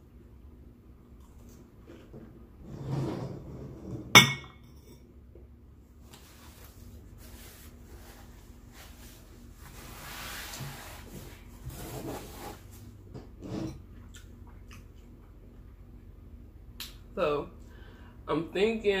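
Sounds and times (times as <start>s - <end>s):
close-up eating sounds: 13.8s - 16.0s.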